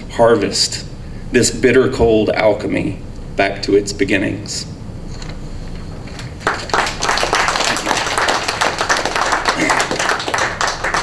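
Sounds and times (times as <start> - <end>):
audience applauding: 6.4 - 11.0.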